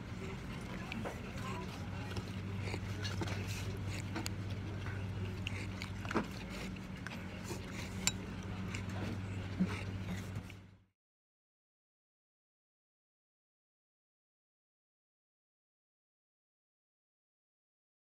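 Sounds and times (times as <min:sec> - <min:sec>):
low electrical hum: 0:00.0 - 0:10.9.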